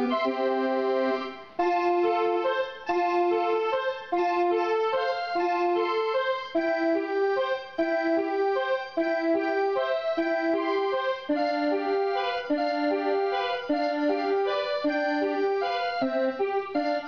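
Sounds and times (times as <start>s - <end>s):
electronic keyboard melody: 0.0s - 17.0s.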